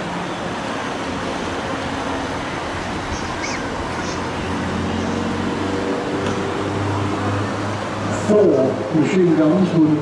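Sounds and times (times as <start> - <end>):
turboprop engines droning overhead: 0.0 - 10.0.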